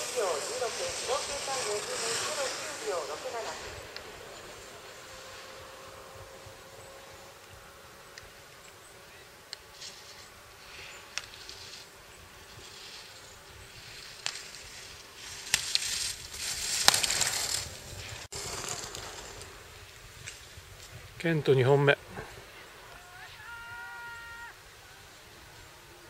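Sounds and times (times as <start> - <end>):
skis carving on snow: 0.0 - 26.0.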